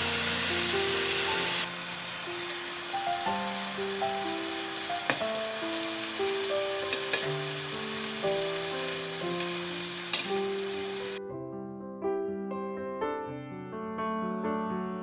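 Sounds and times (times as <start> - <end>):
food sizzling in a frying pan: 0.0 - 11.2
piano background music: 0.0 - 15.0.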